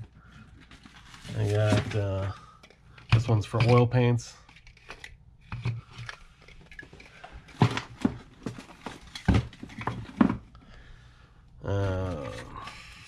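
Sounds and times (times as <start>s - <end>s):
hard plastic knocks and clatter: 5.5s - 10.5s.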